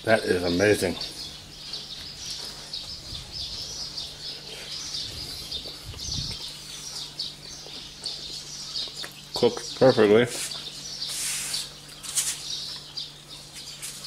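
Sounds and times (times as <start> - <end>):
small birds chirping: 0.0 - 14.0
faint low hum: 0.1 - 11.0.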